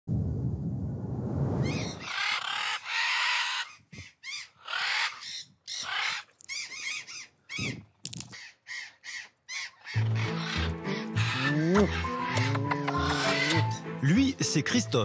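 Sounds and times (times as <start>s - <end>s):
parrots squawking: 1.7s - 7.8s, 8.4s - 13.8s.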